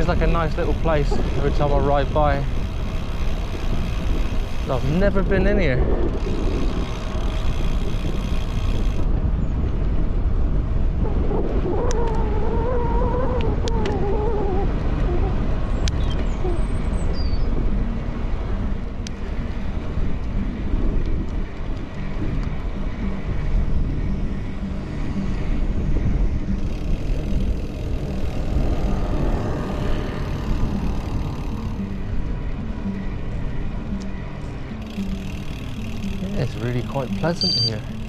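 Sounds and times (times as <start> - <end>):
wind rumbling on microphone: 0.0 - 38.0
wavering pitched sound: 34.8 - 38.0
high chirp: 37.2 - 38.0.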